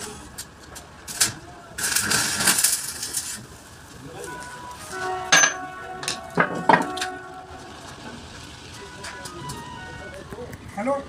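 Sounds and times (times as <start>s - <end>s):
steel parts clanking with ringing tone: 5.0s - 7.2s.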